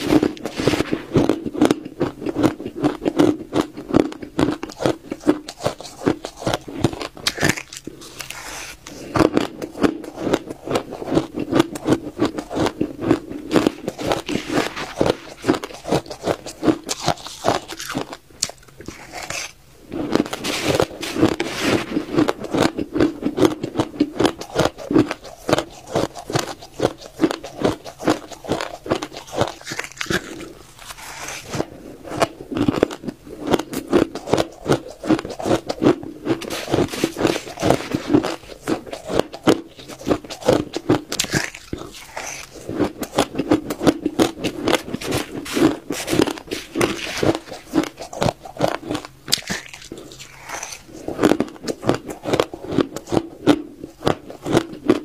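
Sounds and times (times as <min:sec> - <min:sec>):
ice crunched between teeth: 0:00.0 - 0:55.0.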